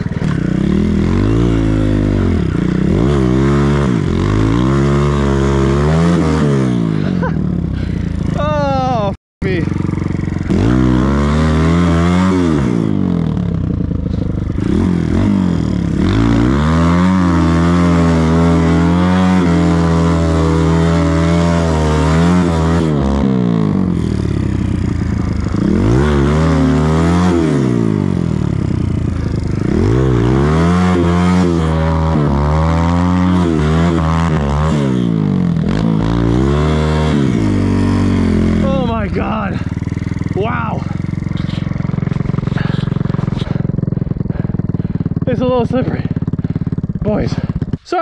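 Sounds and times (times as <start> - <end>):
dirt bike engine revving: 0.0 - 48.0.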